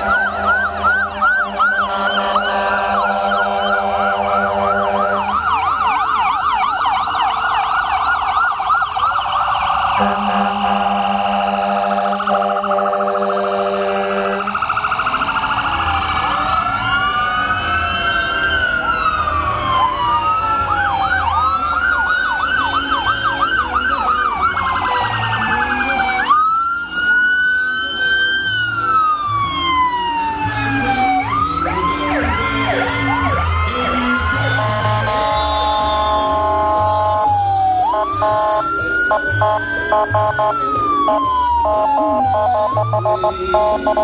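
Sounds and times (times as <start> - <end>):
steady horn-like tone: 0.0 - 5.3, 10.0 - 14.6
fast siren yelp: 0.0 - 44.0
sirens wailing: 0.0 - 44.0.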